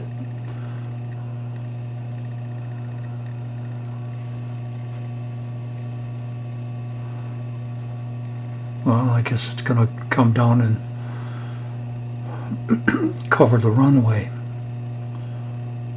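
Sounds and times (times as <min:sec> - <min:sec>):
low electrical hum: 0:00.0 - 0:15.9.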